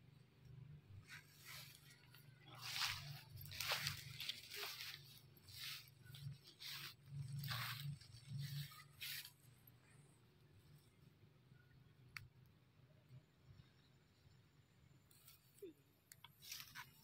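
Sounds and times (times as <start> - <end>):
grass and dry leaves rustling: 0.0 - 11.2, 15.0 - 17.0.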